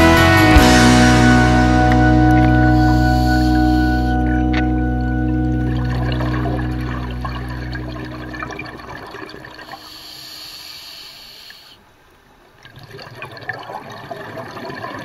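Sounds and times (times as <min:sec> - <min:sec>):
music track: 0:00.0 - 0:09.4
underwater bubbling and crackling: 0:05.4 - 0:15.0.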